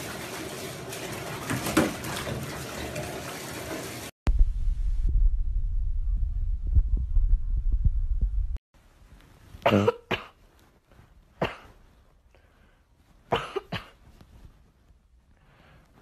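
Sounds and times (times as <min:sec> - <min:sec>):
low rumbling: 0:04.3 - 0:08.6.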